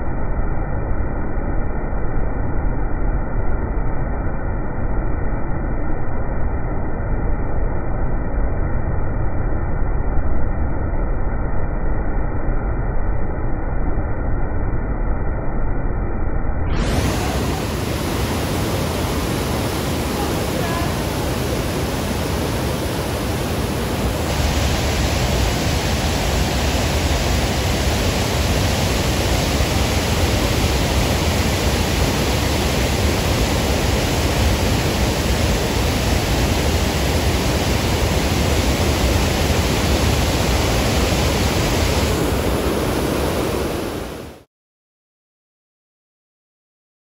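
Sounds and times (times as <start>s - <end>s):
water rushing over rapids: 16.8s - 44.4s.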